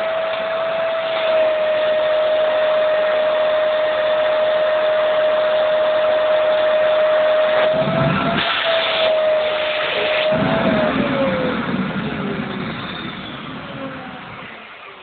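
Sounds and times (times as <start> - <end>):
vacuum cleaner whine: 0.0 - 15.0
low fluttering rumble: 10.2 - 14.6.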